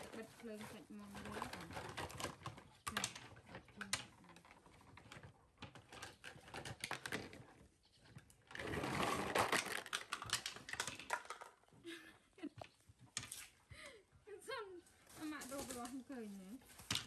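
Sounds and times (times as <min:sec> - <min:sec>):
plastic toys clattering on wood: 0:00.0 - 0:13.7, 0:14.9 - 0:17.0
plastic net bag rustling: 0:08.5 - 0:11.3.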